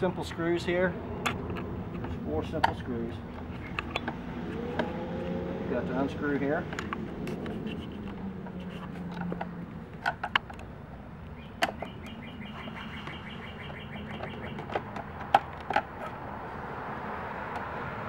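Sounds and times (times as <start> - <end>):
bird chirping: 3.1 - 4.7, 10.5 - 14.8
screwdriver clicking and scraping: 6.7 - 10.7.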